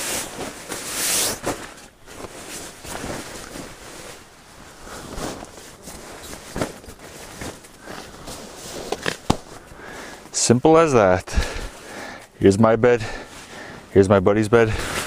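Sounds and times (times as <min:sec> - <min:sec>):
nylon sleeping bag rustling: 0:00.0 - 0:10.4, 0:14.7 - 0:15.0.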